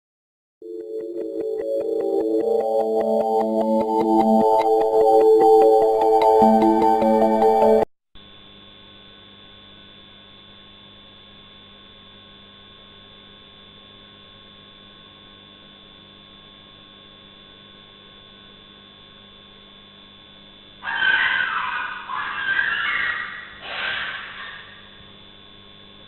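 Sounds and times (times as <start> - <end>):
synthesizer music: 0.6 - 7.9.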